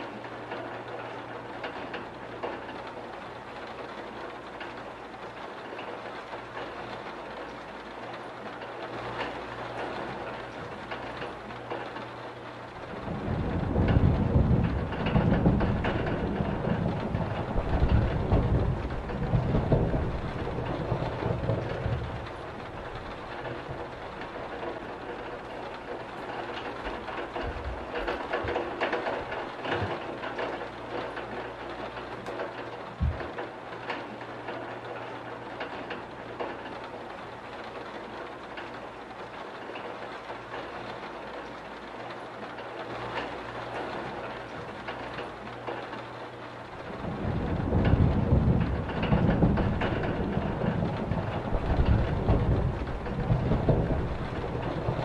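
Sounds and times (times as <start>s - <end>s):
heavy rain: 0.0s - 55.0s
low roll of thunder: 8.6s - 41.4s, 46.6s - 55.0s
low thump: 33.0s - 33.3s.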